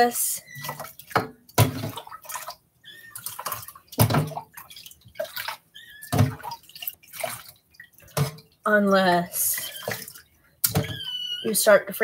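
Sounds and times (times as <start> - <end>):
water splashing in a sink: 0.0 - 12.0.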